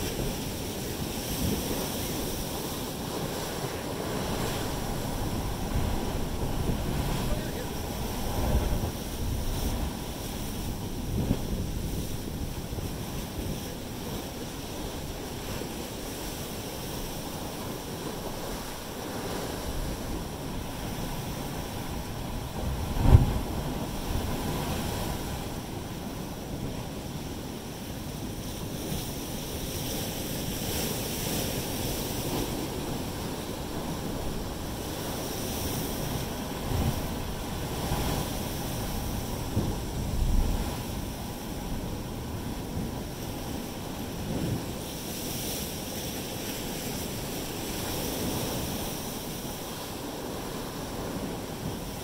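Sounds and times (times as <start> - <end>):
surf rushing through rock channel: 0.0 - 26.8.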